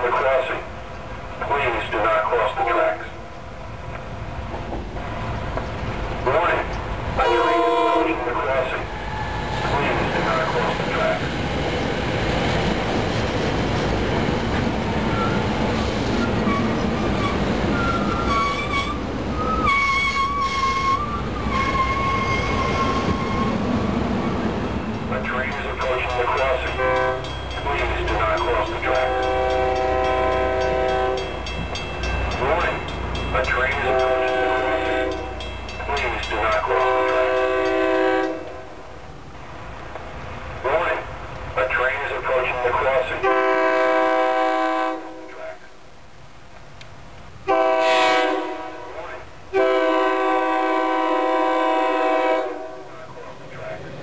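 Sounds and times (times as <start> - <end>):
train wheels rumbling on rail: 0.0 - 45.6
train horn blasts: 7.2 - 8.3, 26.4 - 27.4, 28.4 - 31.5, 33.8 - 35.4, 36.7 - 38.7, 43.2 - 45.3, 47.5 - 52.9
high wheel squeals: 14.9 - 25.0.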